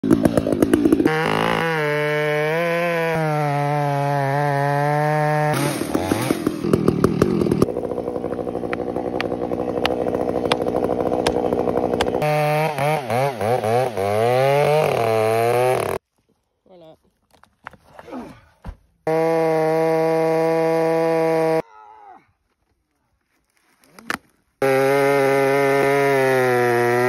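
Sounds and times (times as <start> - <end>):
chainsaw engine revving and cutting: 0.0 - 16.0, 19.0 - 21.6, 24.6 - 27.0.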